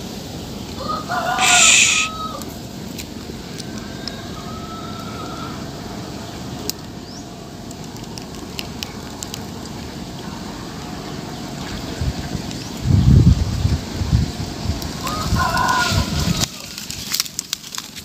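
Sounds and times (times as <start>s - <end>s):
steady rumble and hiss: 0.0s - 18.0s
short sharp clicks: 1.4s - 2.1s.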